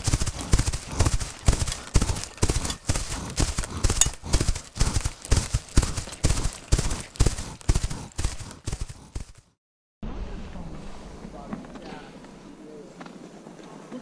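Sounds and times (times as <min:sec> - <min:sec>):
hooves thudding on snow: 0:00.0 - 0:09.6.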